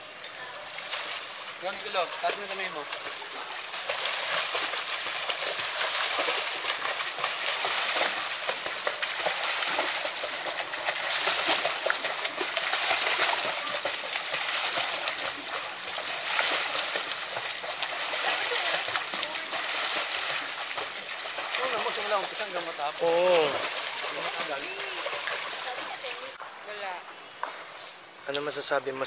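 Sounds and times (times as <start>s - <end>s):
legs splashing water: 0.0s - 26.4s.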